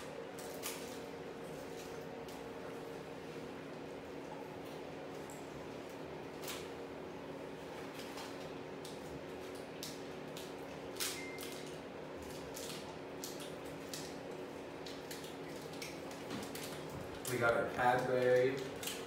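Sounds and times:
plastic wrappers crinkling: 7.9 - 19.0.

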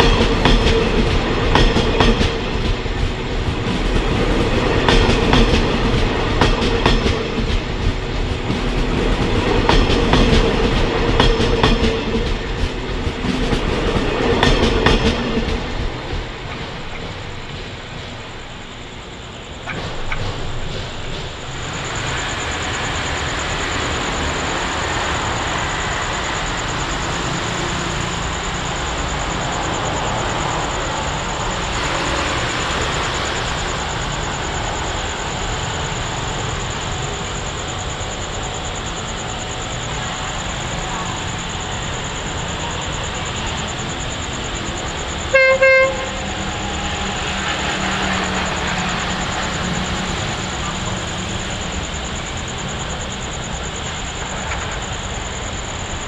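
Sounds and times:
locomotive horn toots: 45.3 - 46.6.

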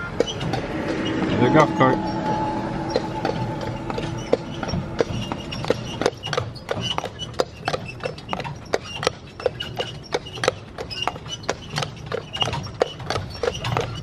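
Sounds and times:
horse hooves clip-clopping on road: 6.0 - 14.0.

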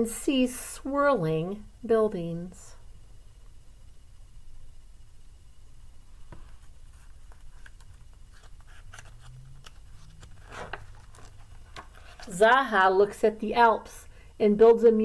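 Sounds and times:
low steady hum: 0.0 - 15.0
book pages turning: 6.3 - 12.6.

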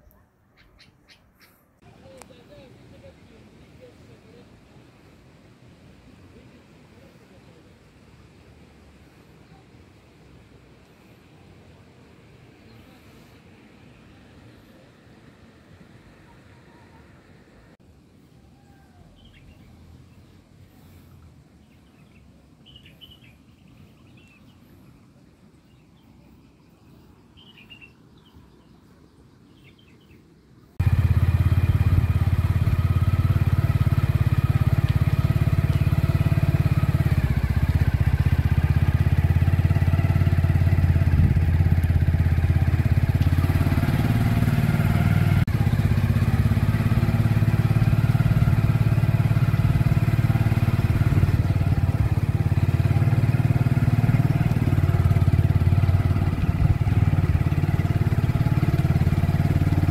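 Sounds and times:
faint bird chirps: 0.0 - 3.0, 16.2 - 40.8
motorcycle engine running: 30.8 - 59.9.

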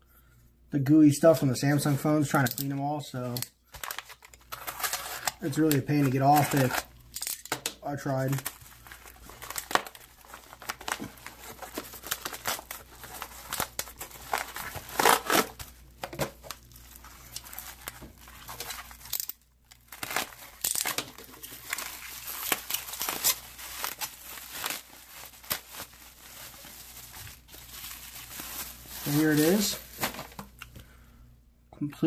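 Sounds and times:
bubble wrap crinkling: 3.7 - 30.8
paper mailer tearing: 3.8 - 6.9, 8.0 - 15.7, 17.2 - 27.4, 28.0 - 30.4.

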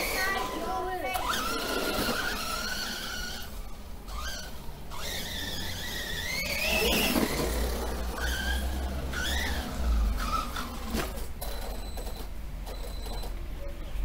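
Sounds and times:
electric motor whining: 0.0 - 11.2.

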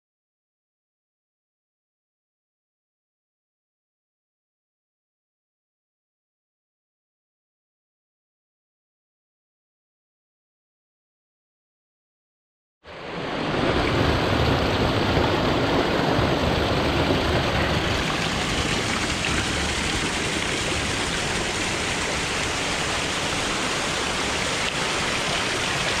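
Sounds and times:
small waterfall splashing on stones: 13.8 - 26.0.

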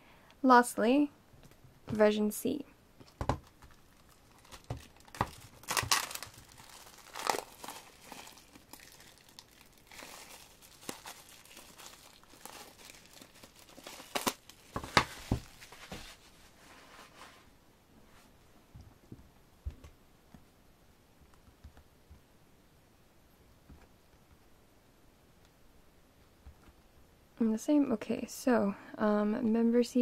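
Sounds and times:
plastic shrink wrap crinkling: 3.0 - 16.3.

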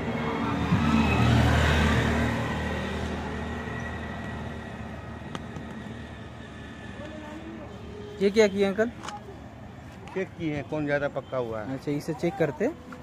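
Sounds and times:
vehicle passing: 0.0 - 9.0.

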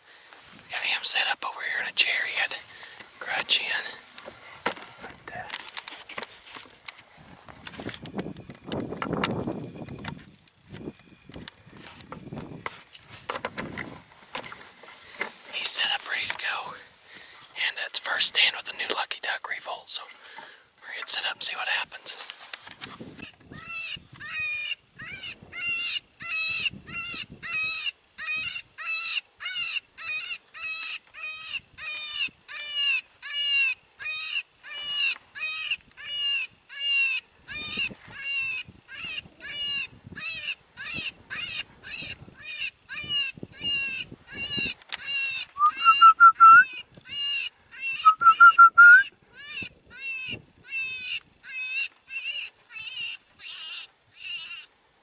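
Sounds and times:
prey distress call: 45.3 - 46.8, 47.8 - 51.8.

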